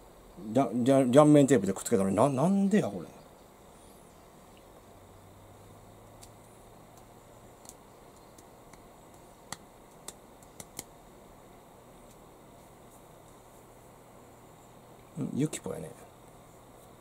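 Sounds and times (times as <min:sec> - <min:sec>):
small sharp clicks: 0:06.2 - 0:10.9.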